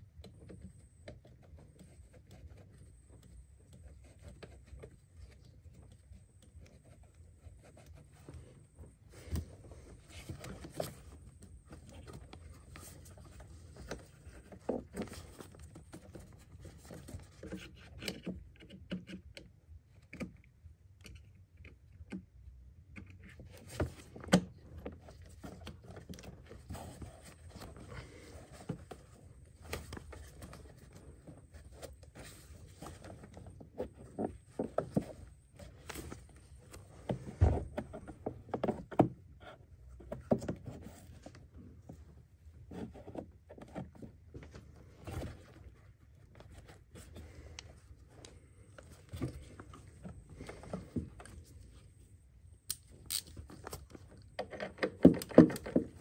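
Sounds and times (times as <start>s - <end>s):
clicks and knocks of parts: 52.6s - 56.0s.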